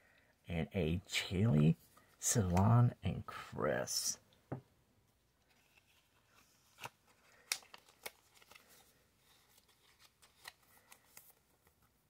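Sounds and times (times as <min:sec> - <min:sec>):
plastic sleeve rustling: 0:05.4 - 0:12.0.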